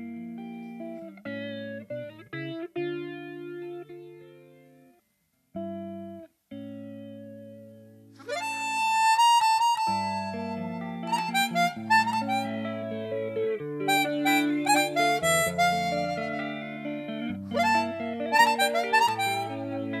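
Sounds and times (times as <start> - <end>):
guitar ringing chords: 0.0 - 5.0, 5.6 - 20.0
harmonica bending note: 8.2 - 13.1, 13.8 - 20.0.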